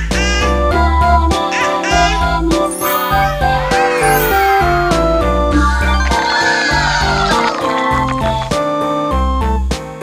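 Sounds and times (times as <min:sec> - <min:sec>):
jingly chimes: 0:02.6 - 0:07.6.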